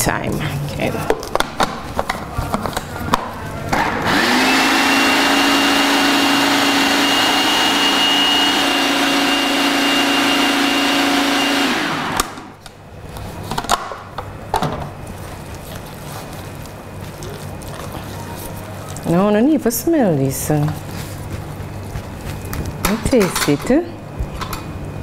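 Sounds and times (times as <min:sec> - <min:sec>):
food processor motor running: 0:03.7 - 0:12.5.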